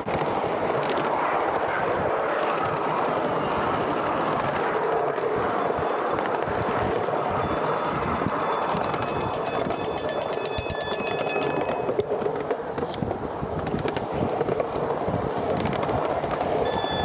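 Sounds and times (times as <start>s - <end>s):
miniature train rumbling on track: 0.0s - 17.0s
railroad crossing bell ringing: 0.3s - 12.1s, 16.6s - 17.0s.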